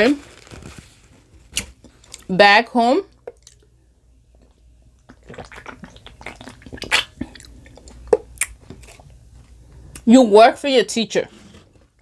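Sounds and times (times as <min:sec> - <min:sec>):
mouth sounds drinking and eating: 0:04.4 - 0:09.0.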